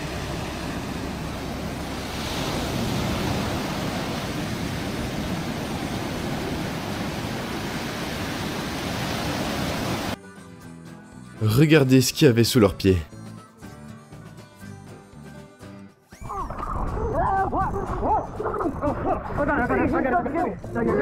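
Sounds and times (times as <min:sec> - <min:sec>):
waves breaking on beach: 0:00.0 - 0:10.2.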